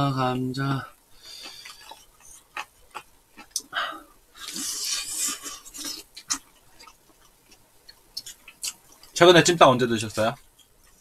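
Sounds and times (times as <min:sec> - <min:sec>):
wet chewing smacks: 0:01.3 - 0:03.7, 0:04.4 - 0:09.2.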